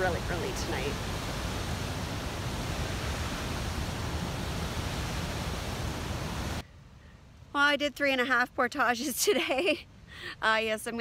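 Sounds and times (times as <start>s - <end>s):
waterfall rushing over rocks: 0.0s - 6.6s.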